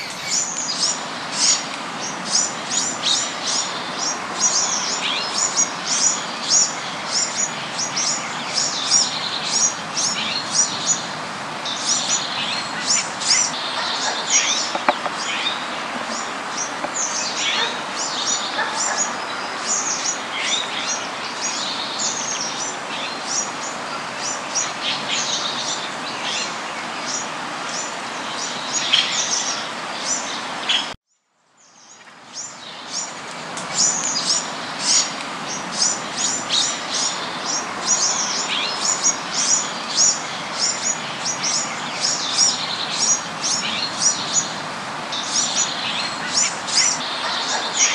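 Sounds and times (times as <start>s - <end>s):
birds chattering: 0.0s - 1.6s, 12.8s - 20.2s, 45.2s - 47.9s.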